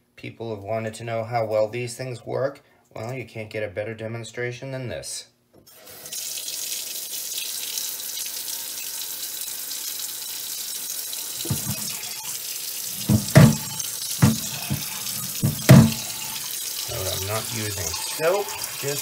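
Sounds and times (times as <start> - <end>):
tap water running into a sink: 5.7 - 19.0.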